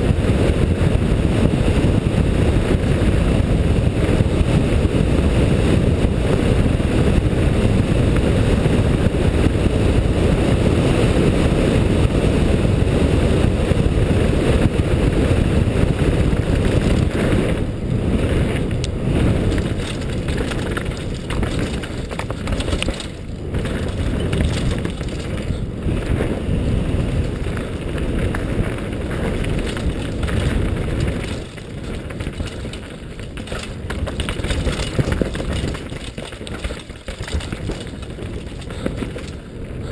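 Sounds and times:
bike tyres on gravel: 0:00.0 - 0:39.9
wind rushing over camera: 0:00.0 - 0:39.9
bike knocking and rattling: 0:12.0 - 0:39.9.

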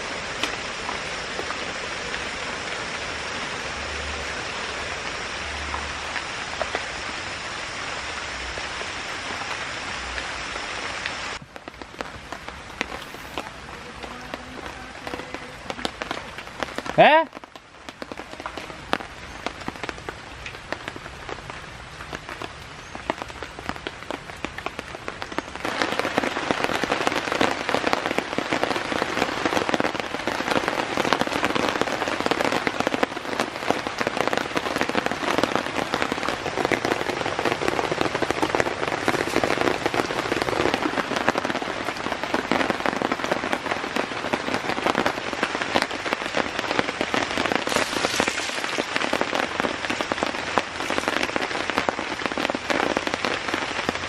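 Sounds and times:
heavy rain on shelter: 0:00.0 - 0:54.0.

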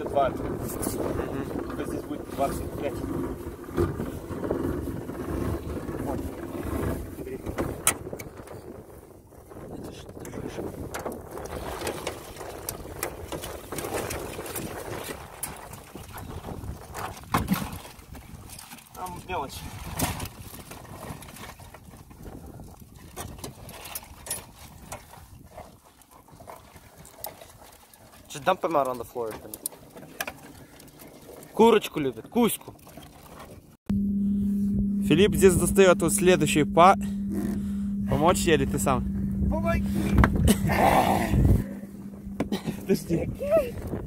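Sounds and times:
low wind rumble: 0:00.0 - 0:18.5, 0:33.6 - 0:44.0
rope hauling crab pot: 0:00.0 - 0:44.0.

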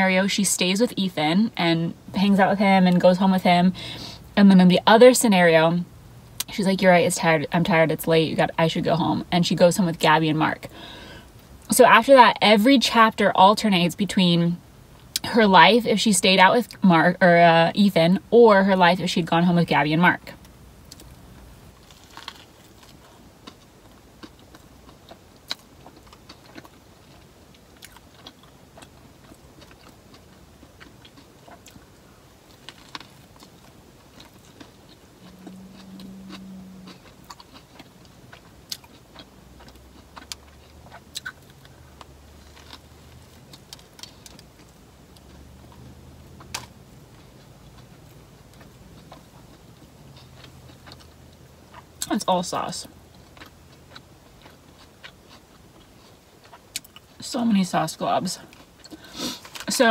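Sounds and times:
chewing with wet mouth clicks: 0:21.8 - 0:31.9, 0:32.5 - 0:45.8, 0:46.4 - 0:52.1, 0:53.1 - 0:57.1
short low hum: 0:35.0 - 0:37.3.

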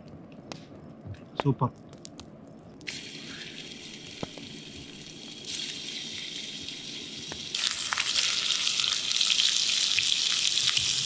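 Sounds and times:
food sizzling in frying pan: 0:02.9 - 0:11.0.

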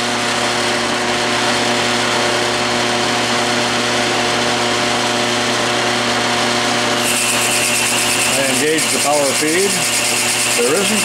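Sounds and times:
metal lathe running: 0:04.3 - 0:11.0.

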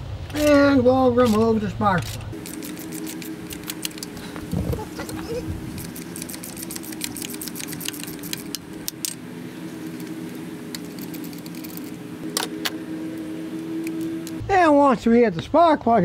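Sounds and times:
steady low hum: 0:00.0 - 0:15.2
metal socket rattling and clicking: 0:05.8 - 0:09.2.

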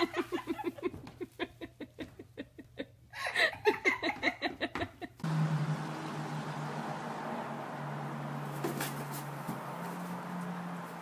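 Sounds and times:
person laughing: 0:00.0 - 0:05.2.

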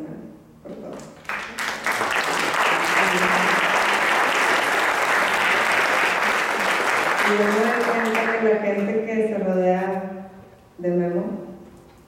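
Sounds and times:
audience applauding: 0:01.2 - 0:08.4.

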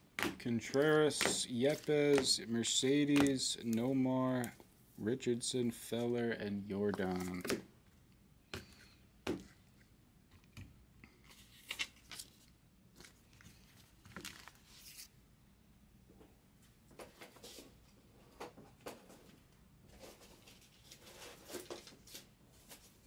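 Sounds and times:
trading cards rustling and tapping: 0:00.1 - 0:04.7, 0:06.8 - 0:07.6.

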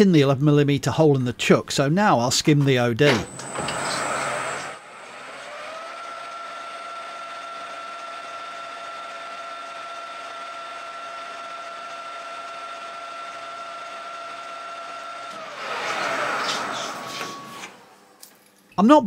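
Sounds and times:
metal lathe whining: 0:03.1 - 0:18.2
lathe tool cutting brass: 0:03.2 - 0:18.0.

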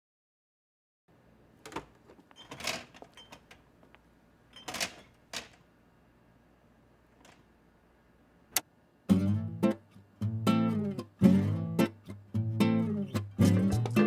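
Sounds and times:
drawers and doors clicking: 0:01.6 - 0:03.7, 0:04.6 - 0:05.6, 0:07.2 - 0:07.5.

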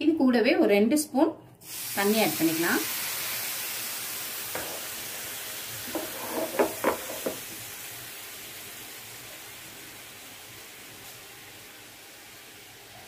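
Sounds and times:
syrup sizzling in a frying pan: 0:01.6 - 0:13.0
pan knocking on burner: 0:04.6 - 0:04.9, 0:05.9 - 0:07.5.

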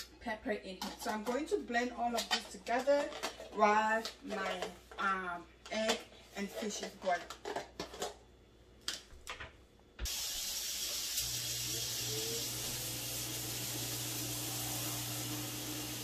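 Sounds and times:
range hood fan rushing hiss: 0:10.0 - 0:16.0.

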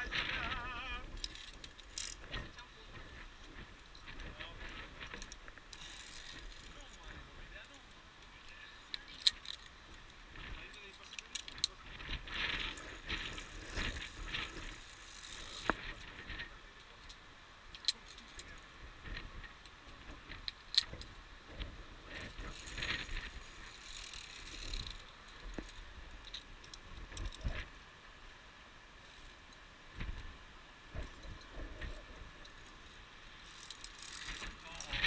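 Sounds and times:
carabiners clinking on steel cable: 0:00.0 - 0:07.8, 0:08.9 - 0:09.8, 0:10.4 - 0:16.2, 0:22.2 - 0:27.6, 0:31.0 - 0:35.0
scraping and rustling: 0:00.0 - 0:07.8, 0:08.9 - 0:16.6, 0:17.9 - 0:27.7, 0:29.0 - 0:35.0.

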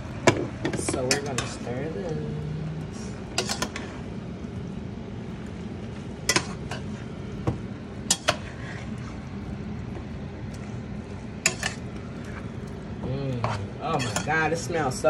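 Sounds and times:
pan sizzling: 0:00.0 - 0:15.0
metal spoon scraping pan: 0:03.3 - 0:04.0, 0:08.1 - 0:09.2, 0:11.4 - 0:12.5, 0:13.4 - 0:14.7.

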